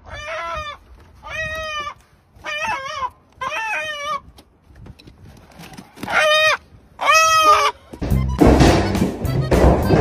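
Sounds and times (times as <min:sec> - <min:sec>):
chicken squawking: 0:00.0 - 0:04.3, 0:06.0 - 0:07.9.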